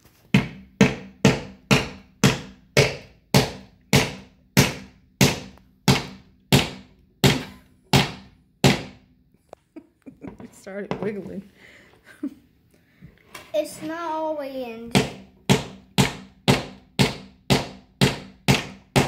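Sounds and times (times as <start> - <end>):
hammer striking nail: 0.3 - 9.1, 14.9 - 19.0.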